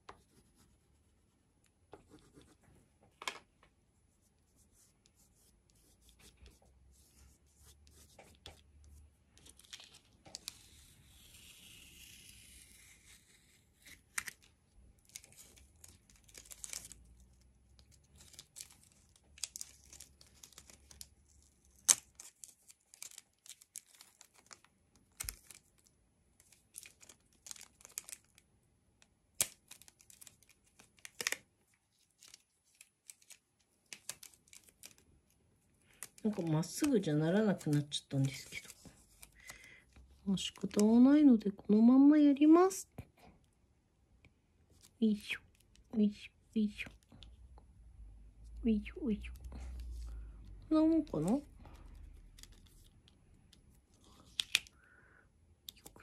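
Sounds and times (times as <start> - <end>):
tape pulled and torn: 9.4 - 17.0, 18.2 - 25.6
small clicks and rustles: 14.1 - 40.9, 51.2 - 54.7.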